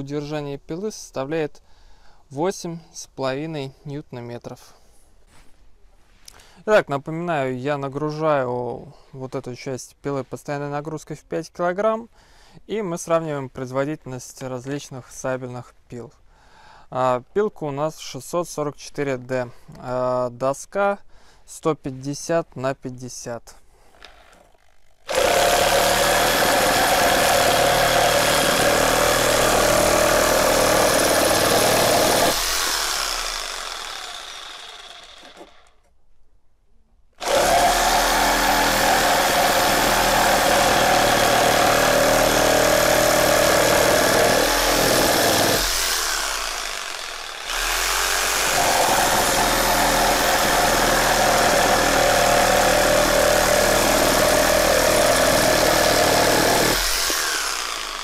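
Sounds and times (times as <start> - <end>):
reciprocating saw cutting wood: 23.9 - 35.8, 37.2 - 58.0.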